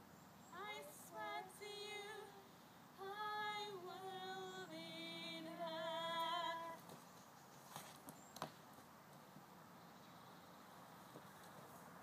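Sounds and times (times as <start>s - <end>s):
woman singing long held notes: 0.5s - 6.8s.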